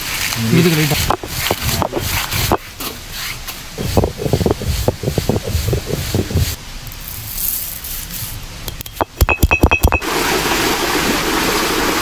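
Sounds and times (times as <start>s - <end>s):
hiss of seeds being crushed: 0.0s - 8.6s
stone roller grinding strokes: 3.8s - 8.4s.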